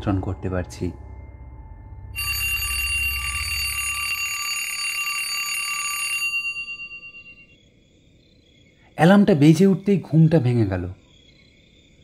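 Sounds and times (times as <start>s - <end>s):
low hum: 0.0s - 4.5s
alarm clock bell ringing: 2.1s - 7.5s.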